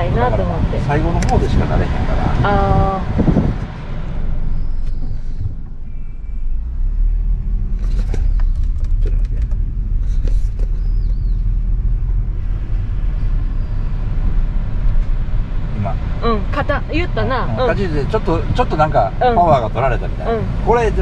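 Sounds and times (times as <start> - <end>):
in-cabin engine and road rumble: 0.0 - 21.0.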